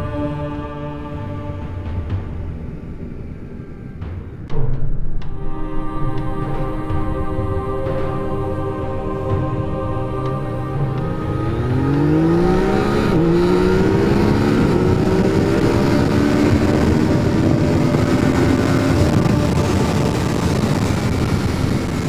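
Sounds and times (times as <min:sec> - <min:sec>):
wind rush on microphone: 0:01.6 - 0:22.0
motorcycle engine accelerating: 0:09.2 - 0:22.0.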